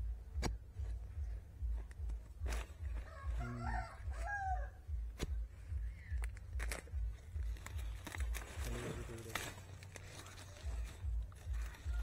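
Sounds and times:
rooster crowing: 3.0 - 4.9.

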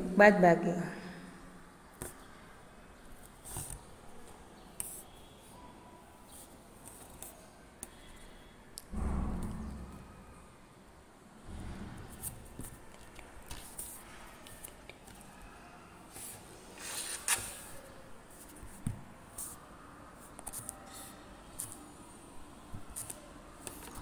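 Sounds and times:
paper rustling: 16.1 - 17.8
pen clicks: 23.0 - 24.0.

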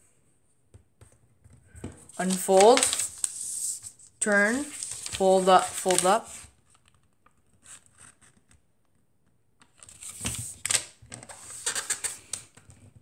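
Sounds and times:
paper rustling and scraping: 2.0 - 6.9, 9.8 - 12.5.

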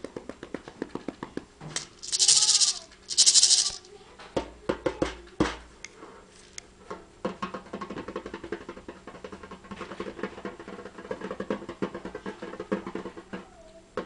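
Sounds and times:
rattle shaken: 1.7 - 4.0.

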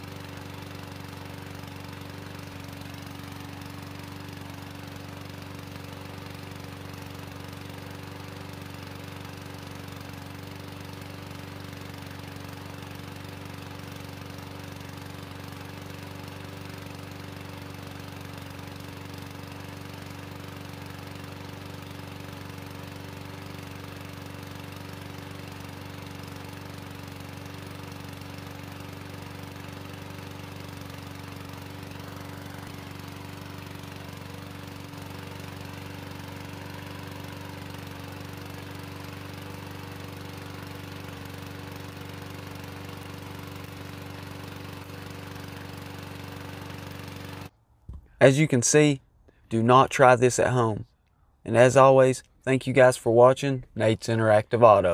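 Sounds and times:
lawn mower engine running: 0.0 - 50.8.

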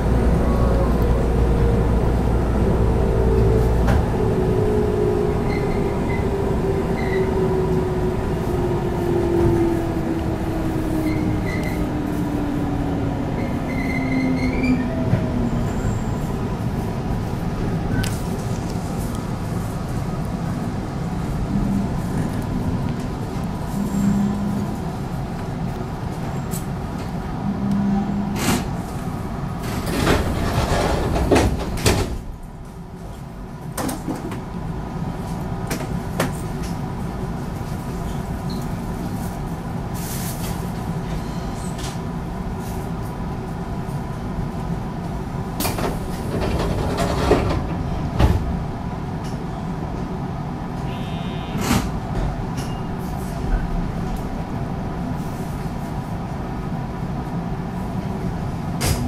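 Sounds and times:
wheels clacking over rail joints: 45.6 - 48.5.

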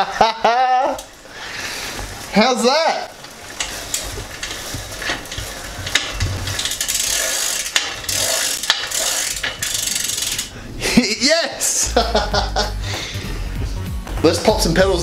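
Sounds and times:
bicycle chain ratcheting clicks: 0.8 - 10.6.

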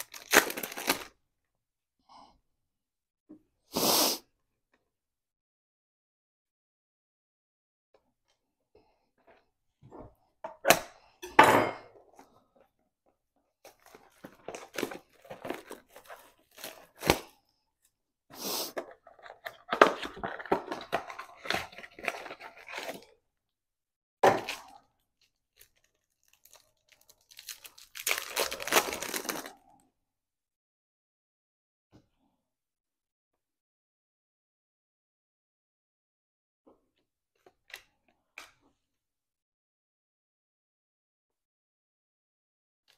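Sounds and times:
foil pack crinkling: 0.0 - 1.1, 13.7 - 17.4, 19.0 - 23.1, 24.4 - 29.6
cardboard box tearing: 14.6 - 17.3.

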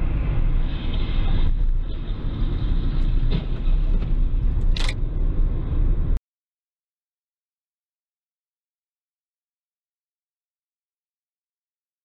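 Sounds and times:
car interior road rumble: 0.0 - 6.2.

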